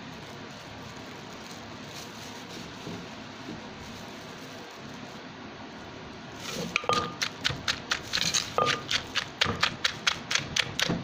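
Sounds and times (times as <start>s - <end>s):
pestle pounding in a mortar: 6.6s - 11.0s.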